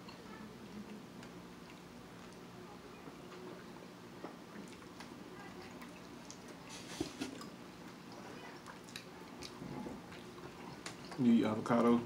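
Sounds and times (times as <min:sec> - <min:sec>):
chewing with wet mouth clicks: 0:00.8 - 0:02.5, 0:04.5 - 0:11.3.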